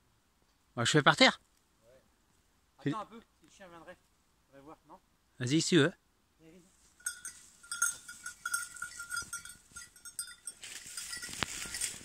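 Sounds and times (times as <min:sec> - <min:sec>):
dog collar bell jingling: 0:07.0 - 0:12.0.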